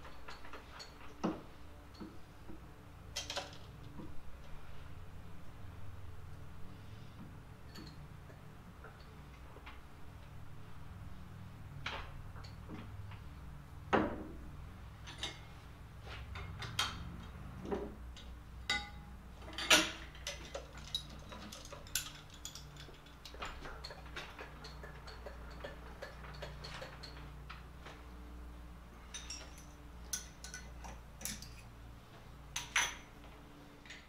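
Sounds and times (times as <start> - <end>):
metallic clanks and clicks: 18.1 - 27.6
crane chain rattling: 19.4 - 27.3.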